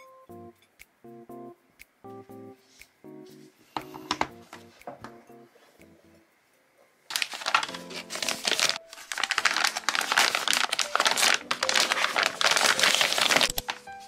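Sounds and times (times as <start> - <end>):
plastic bag crinkling: 7.1 - 13.9.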